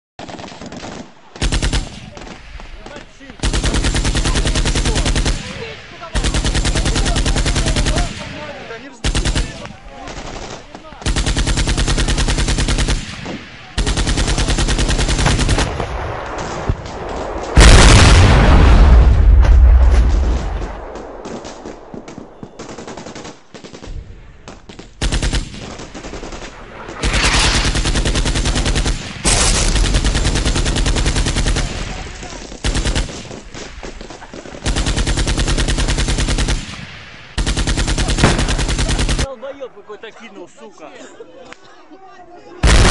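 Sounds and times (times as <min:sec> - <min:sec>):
automatic gunfire bursts: 0:00.2 - 0:15.8, 0:25.0 - 0:39.3, 0:42.6 - 0:42.9.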